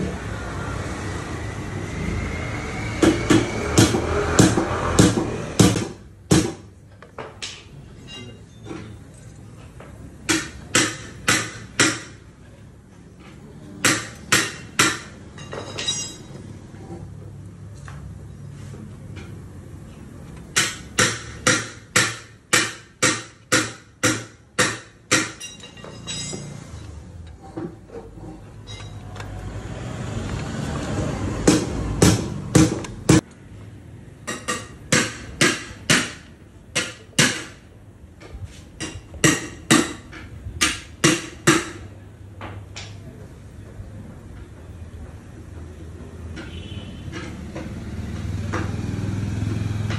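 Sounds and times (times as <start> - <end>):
rushing noise: 0.0 - 5.6.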